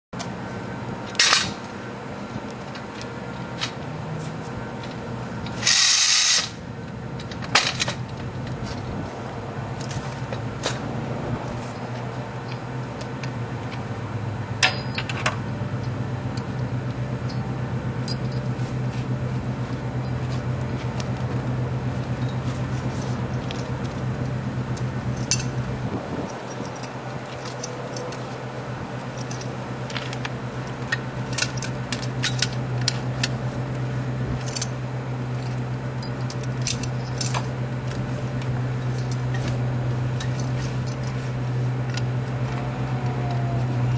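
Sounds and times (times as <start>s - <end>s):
steady low hum: 0.2s - 43.9s
loud metal clank: 1.1s - 1.6s
ratchet strap clicks: 5.4s - 6.6s
metal hardware clinking: 14.6s - 18.8s, 22.0s - 33.4s, 34.4s - 38.0s, 38.8s - 39.6s.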